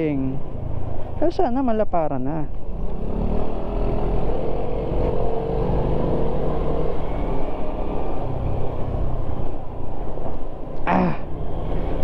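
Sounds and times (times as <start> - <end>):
wind and road noise: 0.0 - 12.0
motorcycle engine running: 2.6 - 10.2.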